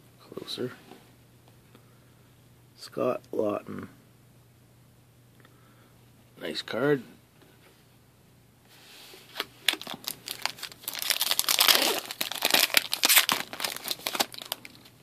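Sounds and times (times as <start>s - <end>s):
foil wrapper tearing and crinkling: 9.6s - 15.0s.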